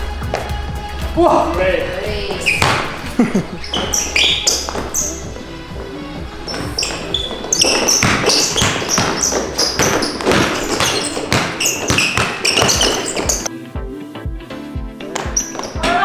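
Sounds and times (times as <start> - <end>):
basketball bouncing on court floor: 2.3 - 3.0, 3.7 - 5.2, 6.5 - 13.5.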